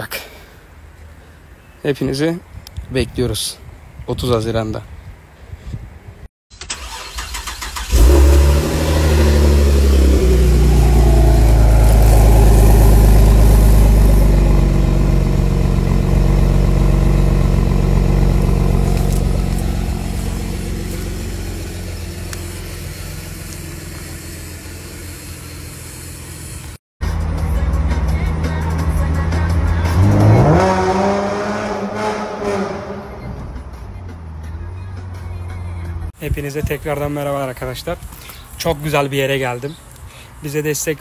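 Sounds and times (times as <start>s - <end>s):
car engine starting and idling: 6.6s - 35.9s.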